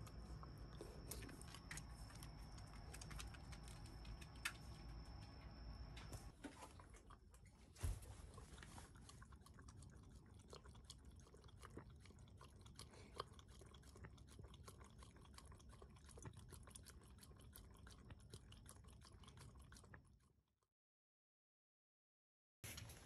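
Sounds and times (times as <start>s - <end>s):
dog lapping water: 6.7s - 20.3s.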